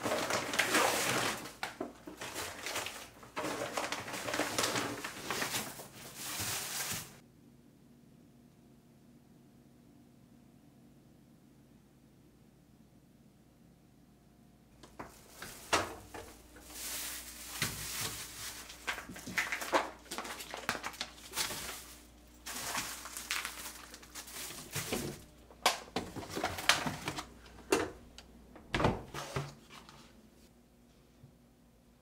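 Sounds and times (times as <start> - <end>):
plastic packaging crinkling: 0.0 - 7.2, 14.8 - 27.5.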